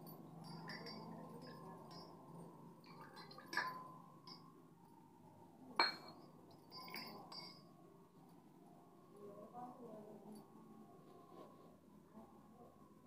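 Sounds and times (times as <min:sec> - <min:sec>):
small steel cup clinking: 0:00.0 - 0:04.5, 0:05.8 - 0:07.7.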